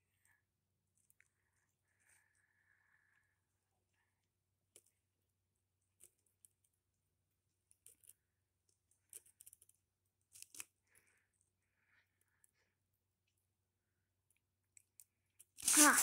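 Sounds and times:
paper rustling and crinkling: 15.6 - 16.0.

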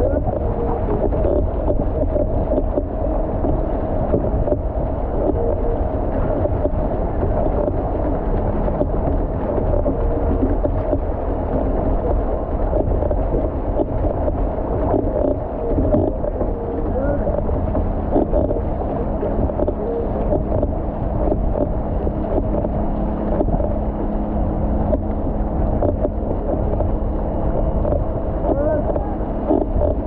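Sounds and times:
steady drone: 0.0 - 30.0
water rushing and splashing: 0.0 - 30.0
wind on microphone: 0.0 - 30.0.

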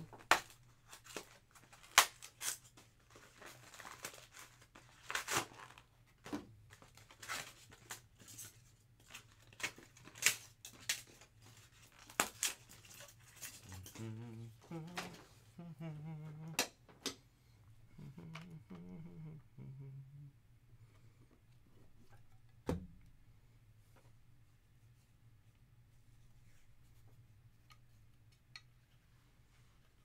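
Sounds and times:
packaging rustling: 0.0 - 5.9, 6.7 - 14.0.

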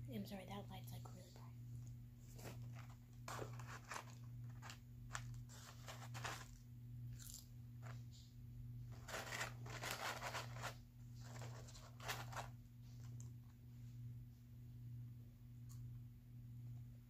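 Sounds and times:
steady low hum: 0.0 - 17.0
food packaging crunching and crinkling: 2.3 - 6.6, 7.2 - 8.0, 8.9 - 13.2.

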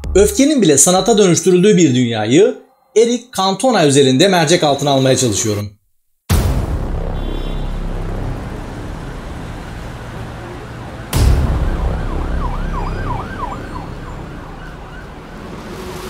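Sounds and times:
sudden loud burst of noise: 6.3 - 10.3, 11.0 - 13.4
low street rumble: 6.6 - 16.0
emergency siren yelping: 8.6 - 16.0.

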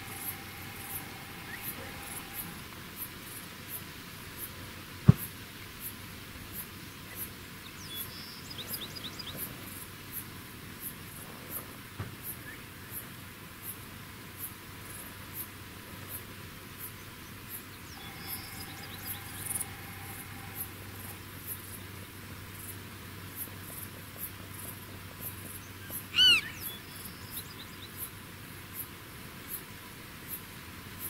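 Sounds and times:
prairie dog call: 0.0 - 2.6, 18.0 - 21.2, 25.9 - 27.1
faint high ticking: 0.0 - 2.7, 18.0 - 21.9.

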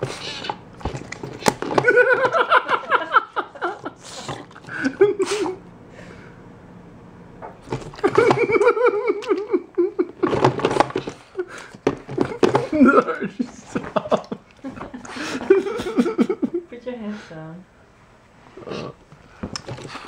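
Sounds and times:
person laughing: 1.8 - 4.0, 4.6 - 5.6, 8.0 - 10.4, 11.3 - 16.7.

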